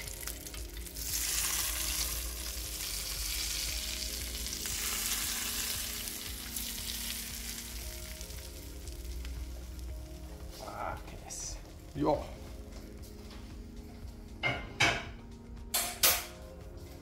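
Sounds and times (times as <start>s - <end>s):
sauce sizzling in a pan: 0.0s - 10.8s.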